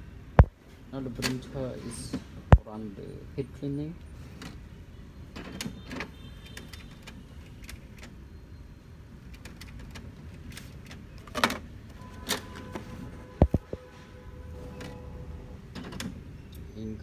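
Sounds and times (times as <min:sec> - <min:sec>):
printer carriage clicks and whirs: 0:15.7 - 0:16.2.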